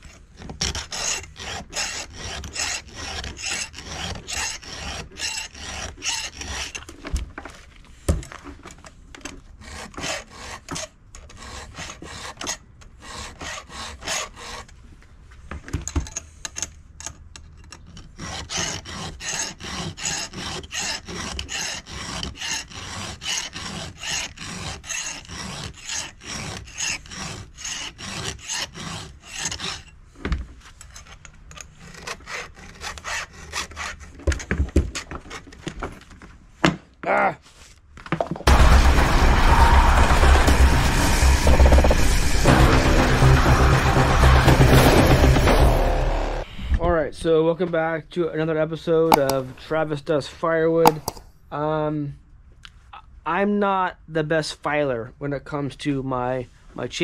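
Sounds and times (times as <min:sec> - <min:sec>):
file rasping on chainsaw chain: 0:00.6 - 0:07.0, 0:09.6 - 0:14.8, 0:17.9 - 0:30.0, 0:30.8 - 0:34.5.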